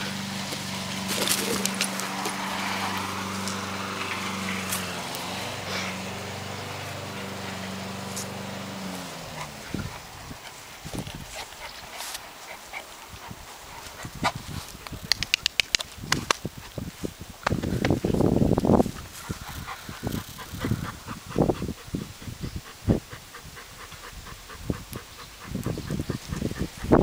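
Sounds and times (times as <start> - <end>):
motor humming: 0.0 - 11.3.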